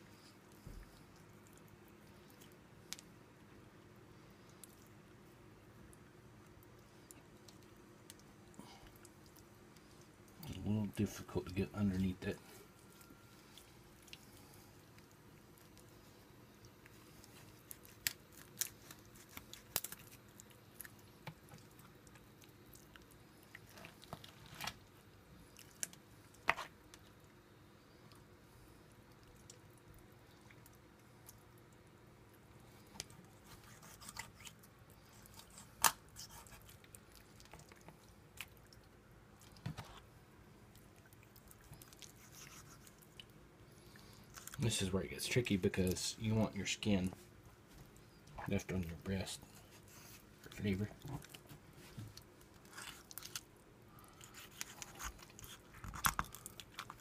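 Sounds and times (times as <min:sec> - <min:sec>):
cartilage crunching: 0:16.7 - 0:24.8, 0:40.7 - 0:43.4, 0:44.0 - 0:44.8, 0:50.5 - 0:57.0.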